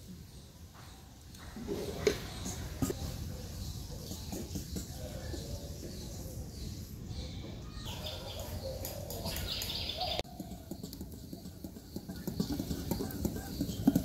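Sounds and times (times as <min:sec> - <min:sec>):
birds chirping: 0:00.0 - 0:14.0.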